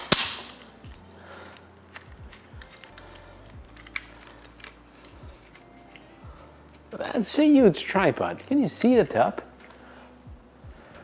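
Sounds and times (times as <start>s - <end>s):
tripod leg locks clicking: 1.9s - 6.0s.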